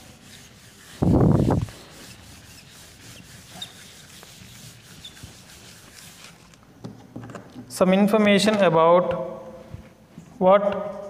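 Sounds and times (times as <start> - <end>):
whiteboard wiping strokes: 0.0 - 6.6.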